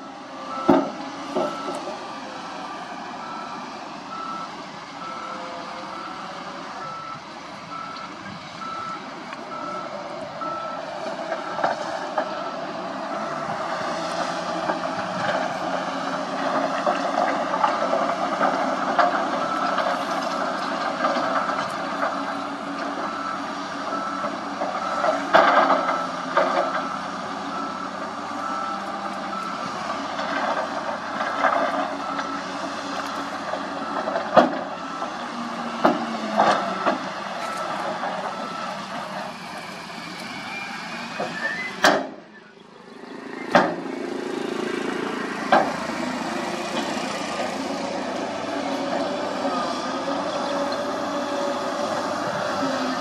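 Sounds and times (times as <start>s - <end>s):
diesel truck engine: 0.0s - 53.0s
reversing alarm beeps: 0.5s - 1.9s, 3.2s - 11.6s, 19.3s - 20.6s, 21.3s - 29.7s, 36.6s - 38.8s.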